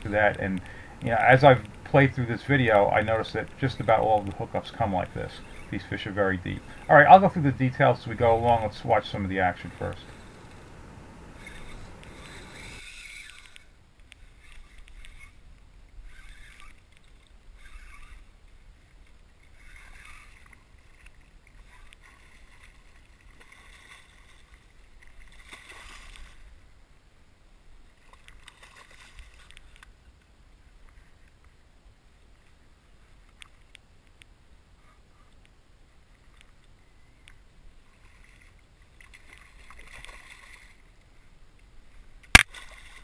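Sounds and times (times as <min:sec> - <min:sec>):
water sloshing against kayak: 0:00.0 - 0:26.8, 0:27.7 - 0:30.0, 0:36.0 - 0:43.0.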